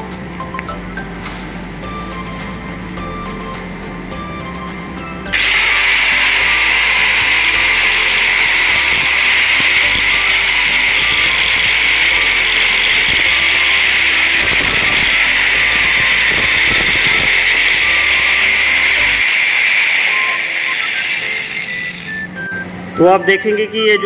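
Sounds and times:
angle grinder grinding metal: 0:05.3 - 0:22.3.

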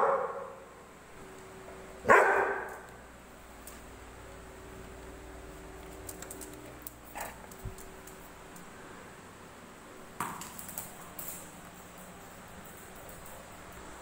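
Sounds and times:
ball clicking on stone floor: 0:10.2 - 0:13.5.

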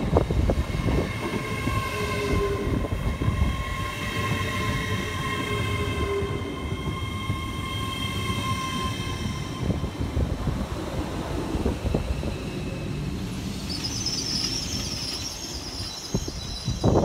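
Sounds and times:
train rumble: 0:00.0 - 0:17.0
train whine: 0:00.0 - 0:17.0
brake squeal: 0:12.2 - 0:17.0.

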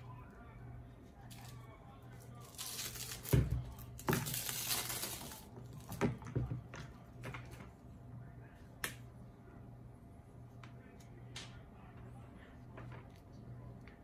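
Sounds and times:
plastic wrapping crinkling: 0:02.2 - 0:06.0.

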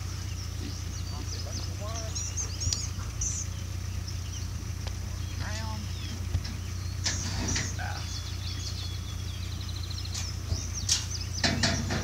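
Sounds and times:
birds chirping and trilling: 0:00.0 - 0:12.0
sharp knocks: 0:10.5 - 0:12.0.

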